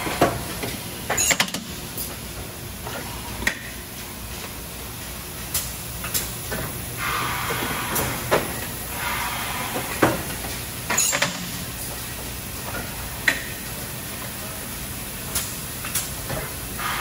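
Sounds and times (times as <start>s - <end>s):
air hiss: 16.8s - 17.0s.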